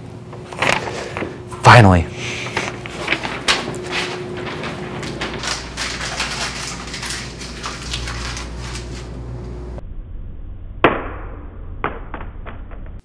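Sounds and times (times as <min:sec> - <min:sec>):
paper being crumpled: 0:02.4 - 0:09.4.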